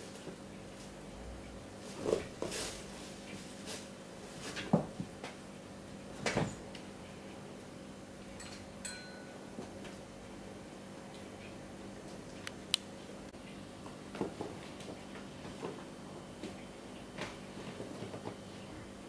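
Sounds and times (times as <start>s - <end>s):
kittens scuffling: 1.8s - 5.0s.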